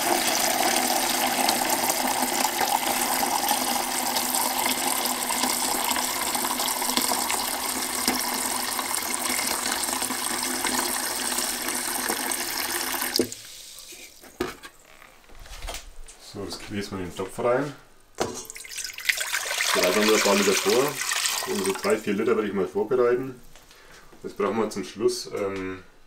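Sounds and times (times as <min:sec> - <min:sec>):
tap water running into jug: 0:00.0 - 0:14.6, 0:18.2 - 0:22.2.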